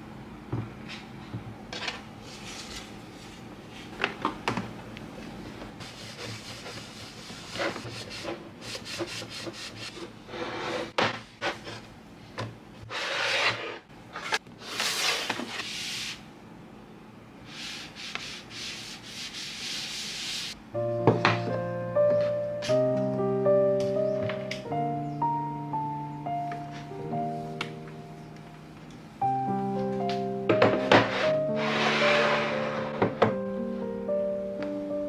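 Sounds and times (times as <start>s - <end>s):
cloth rubbing on wooden desk: 31.1s - 32.9s.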